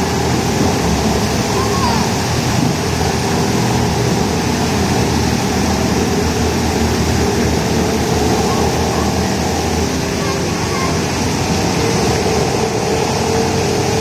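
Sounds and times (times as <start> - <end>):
boat motors humming: 0.0 - 14.0
water churning: 0.0 - 14.0.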